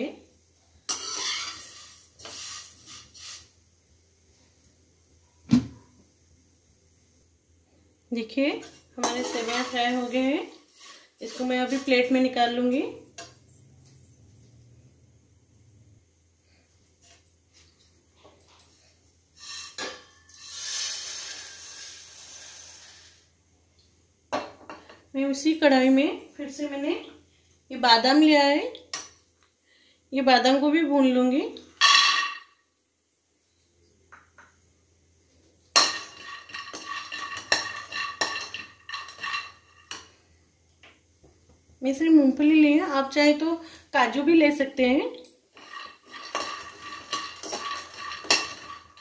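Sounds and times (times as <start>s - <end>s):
spoon scraping metal pan: 0.9s - 3.5s, 8.6s - 12.4s, 19.4s - 23.2s, 35.7s - 40.2s, 45.5s - 49.0s
dry rustling hiss: 17.1s - 23.4s
vermicelli clattering on a plate: 35.7s - 40.1s, 45.6s - 49.0s.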